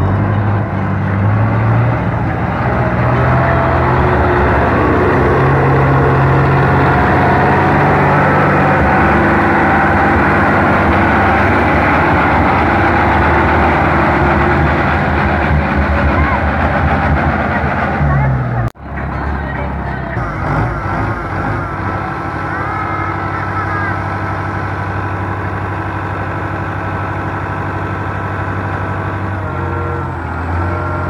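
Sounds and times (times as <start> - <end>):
tractor diesel engine running: 0.0 - 31.0.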